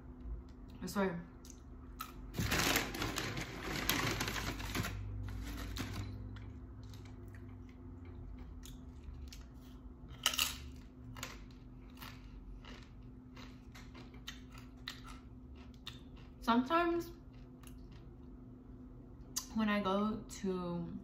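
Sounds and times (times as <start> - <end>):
chip crunching: 1.4 - 16.4, 17.1 - 18.4.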